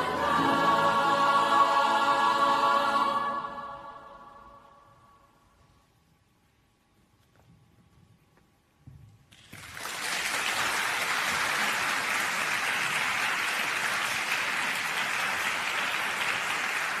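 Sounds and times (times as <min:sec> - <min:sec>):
audience applause: 0:09.4 - 0:17.0.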